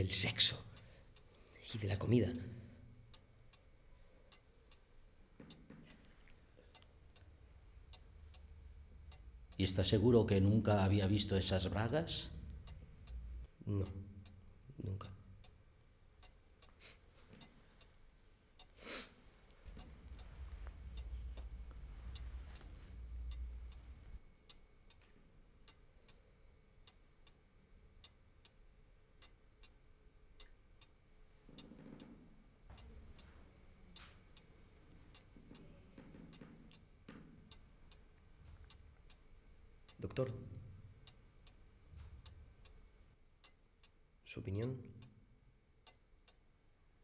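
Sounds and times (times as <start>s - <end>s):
mantel clock ticking: 0.0s - 18.8s, 19.6s - 25.0s, 26.8s - 31.0s, 32.7s - 44.0s, 45.8s - 46.4s
low rumble: 7.3s - 13.5s, 19.6s - 24.2s.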